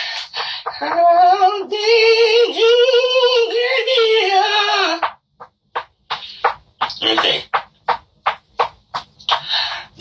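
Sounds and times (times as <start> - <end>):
high voice singing with vibrato: 0.7 - 5.1.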